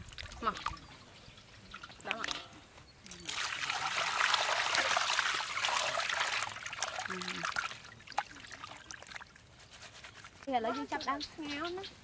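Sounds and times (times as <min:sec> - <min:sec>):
water pouring and splashing: 0:00.0 - 0:02.5, 0:03.1 - 0:10.5
water dripping: 0:00.0 - 0:09.4.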